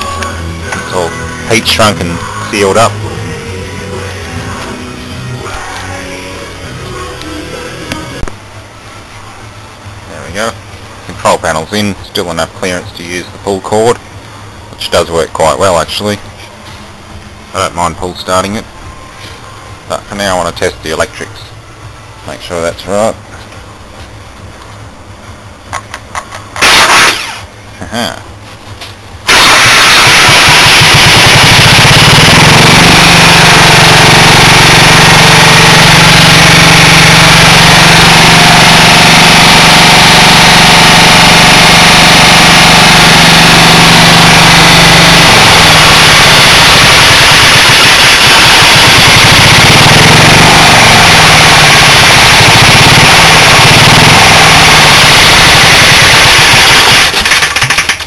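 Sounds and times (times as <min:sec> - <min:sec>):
diesel generator engine running: 0:29.3 - 0:57.2.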